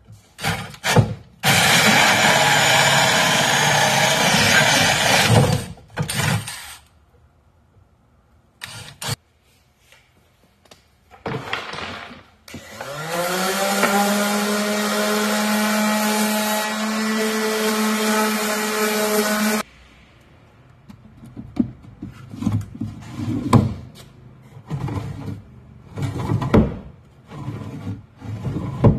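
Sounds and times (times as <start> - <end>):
wooden drawers sliding and knocking: 11.1 - 12.5, 21.1 - 28.9.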